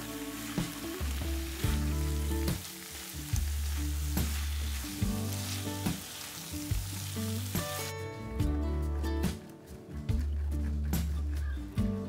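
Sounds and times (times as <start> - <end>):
food sizzling in a frying pan: 0.0 - 8.1
background music: 0.0 - 12.0.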